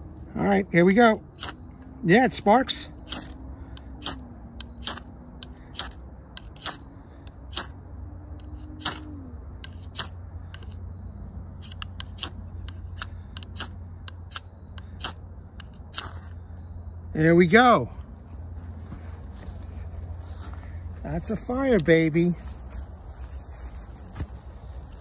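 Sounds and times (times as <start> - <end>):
knife scraping ferrocerium rod: 1.4 - 1.6, 3.0 - 3.4, 4.0 - 5.1, 5.8 - 6.8, 7.5 - 7.8, 8.5 - 10.8, 11.6 - 16.4.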